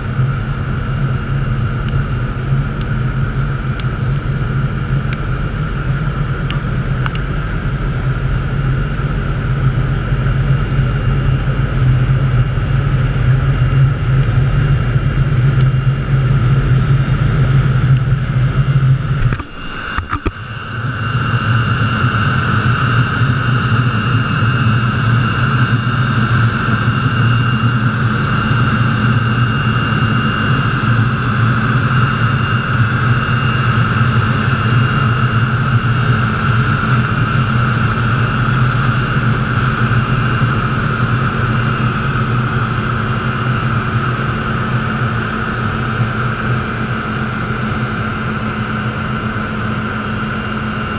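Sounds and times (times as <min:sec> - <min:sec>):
diesel engine humming: 0:00.0 - 0:23.5, 0:27.7 - 0:45.8
cutter drum grinding asphalt: 0:14.0 - 0:22.4, 0:33.7 - 0:44.5.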